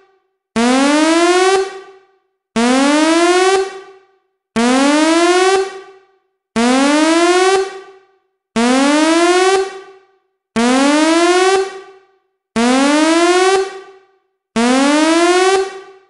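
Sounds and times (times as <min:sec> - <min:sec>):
rising alert siren: 0:04.6 - 0:06.0, 0:08.6 - 0:10.0, 0:10.6 - 0:12.0, 0:12.6 - 0:14.0, 0:14.6 - 0:16.0.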